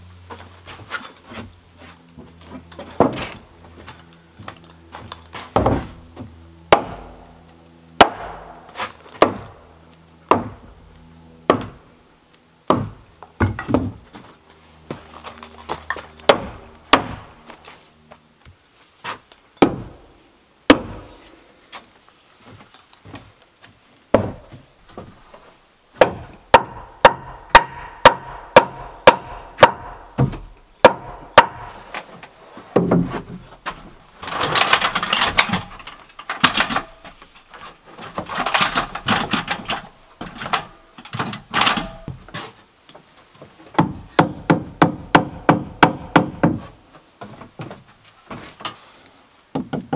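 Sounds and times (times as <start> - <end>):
hammer striking nails into wood: 8.0 - 8.5, 26.0 - 31.8, 43.8 - 46.7, 49.6 - 49.9.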